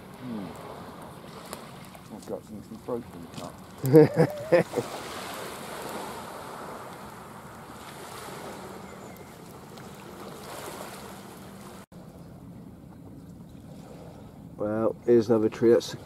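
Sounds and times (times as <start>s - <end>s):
sea waves washing on beach: 0.0s - 11.9s.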